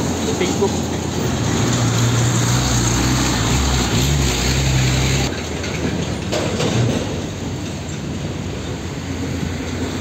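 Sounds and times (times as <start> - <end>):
quieter traffic: 0.0 - 10.0
tyre and road noise: 0.0 - 10.0.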